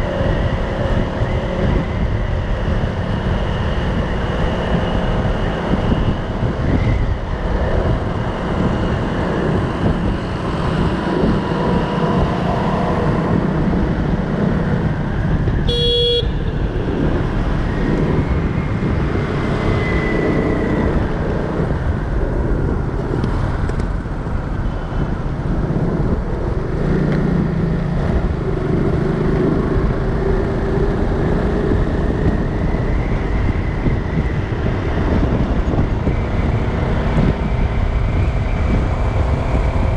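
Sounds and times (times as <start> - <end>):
road traffic noise: 0.0 - 39.9
vehicle horn toot: 15.6 - 16.6.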